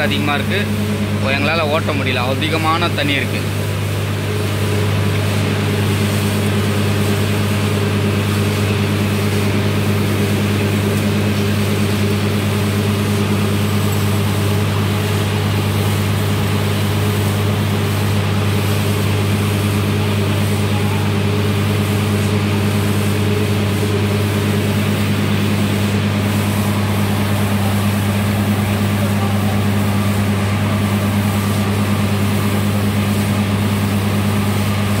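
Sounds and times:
drilling rig droning: 0.0s - 35.0s
compressed air blowing water: 1.8s - 35.0s.

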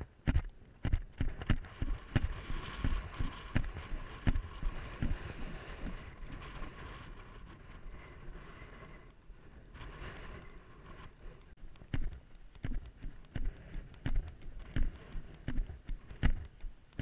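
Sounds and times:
camera thumping on helmet: 0.0s - 5.2s, 11.6s - 17.0s
wind rushing across microphone: 0.0s - 17.0s.

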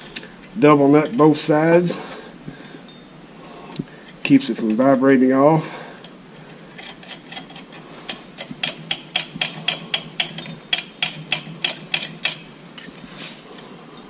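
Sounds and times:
wrench clicking on metal: 6.8s - 12.5s.

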